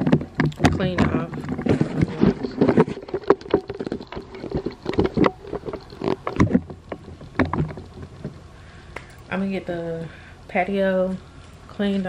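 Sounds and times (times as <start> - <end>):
microphone handling noise: 0.0 - 9.3.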